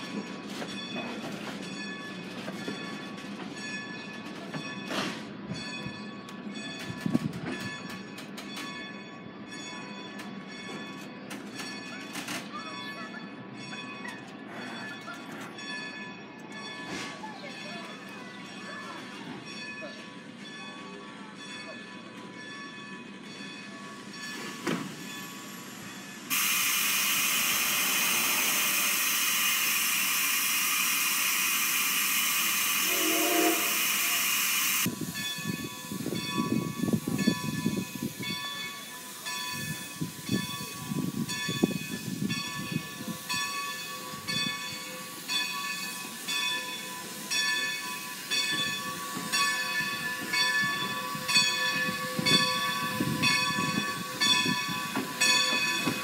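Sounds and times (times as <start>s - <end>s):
steam locomotive chuffs and thumps: 24.2s - 56.0s
steam venting hiss: 24.8s - 56.0s
steady high-pitched tones: 25.9s - 40.0s.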